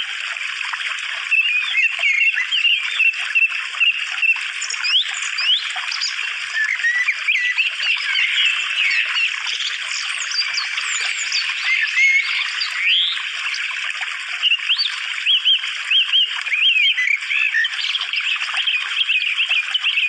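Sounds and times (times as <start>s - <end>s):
birds chirping and singing: 1.3s - 13.6s, 14.4s - 20.0s.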